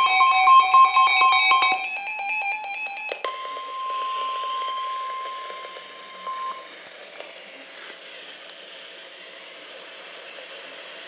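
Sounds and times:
overlapping alarm beeps: 0:00.0 - 0:06.7
steady warning alert tone: 0:00.0 - 0:06.8.

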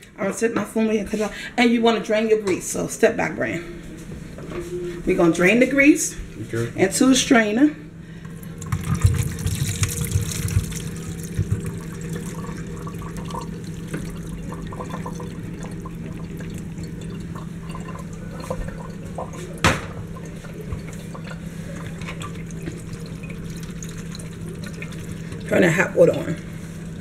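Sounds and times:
meat and grease pouring into colander: 0:08.6 - 0:16.8.

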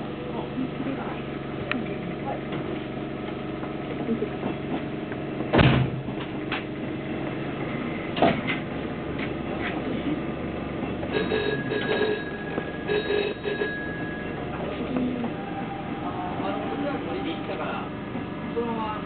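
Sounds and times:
train equipment hum: 0:00.0 - 0:19.0
electronic ringing tone: 0:11.1 - 0:14.5.

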